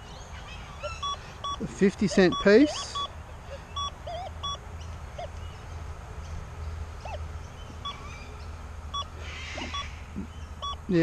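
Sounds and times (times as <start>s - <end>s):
faint bird calls: 0.0s - 11.0s
low steady hum: 0.0s - 11.0s
metal detector beeps: 1.0s - 3.1s, 3.8s - 4.6s.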